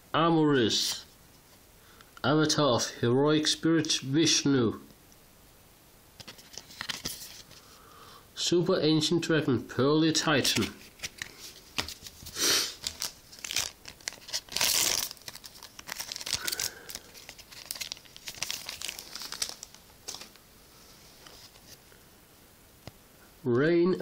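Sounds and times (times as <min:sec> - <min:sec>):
foil wrapper crinkling: 0:10.5 - 0:20.4.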